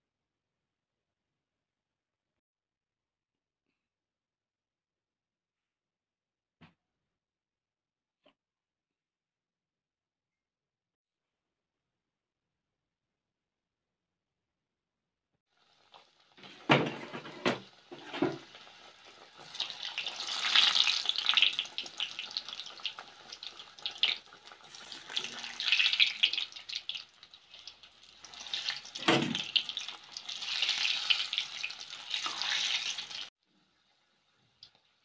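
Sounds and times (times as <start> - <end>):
dough deep-frying in sizzling oil: 15.5 - 35.0.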